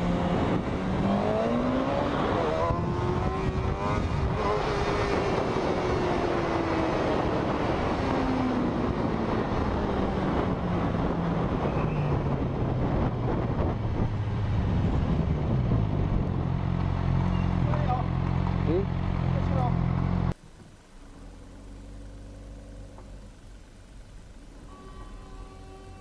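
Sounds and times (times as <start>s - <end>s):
wind rushing over microphone: 0.0s - 16.7s.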